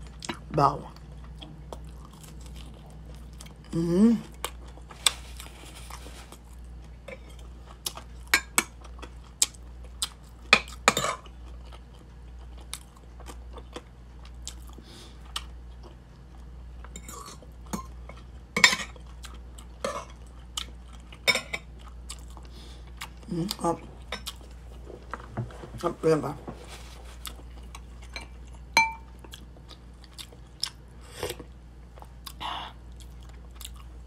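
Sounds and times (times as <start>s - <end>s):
steady low hum: 0.0s - 34.0s
chewing: 0.1s - 3.7s, 4.3s - 34.0s
cutlery clinking on ceramic: 28.1s - 29.1s.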